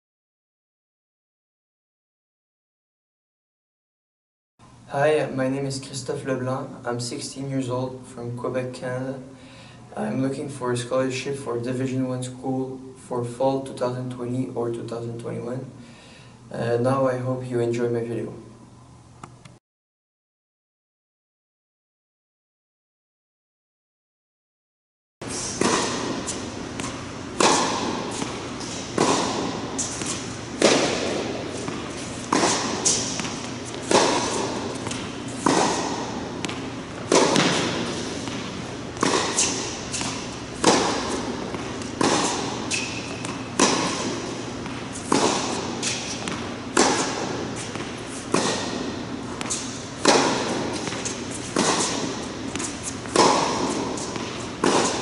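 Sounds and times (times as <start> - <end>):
tennis ball hits echoing: 25.3 - 55.0.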